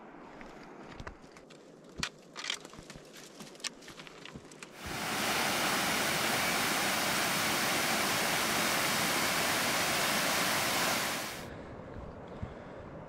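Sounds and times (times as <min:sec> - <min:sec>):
waterfall rushing and splashing: 0:04.8 - 0:11.5.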